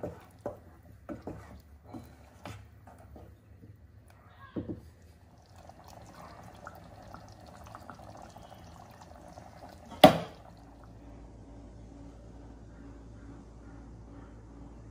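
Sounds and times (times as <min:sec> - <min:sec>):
curry bubbling in a pot: 0:00.0 - 0:03.2, 0:04.8 - 0:11.0.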